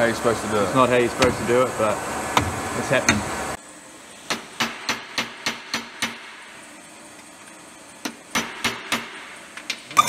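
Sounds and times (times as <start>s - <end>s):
hammer tapping on metal: 4.3s - 6.4s.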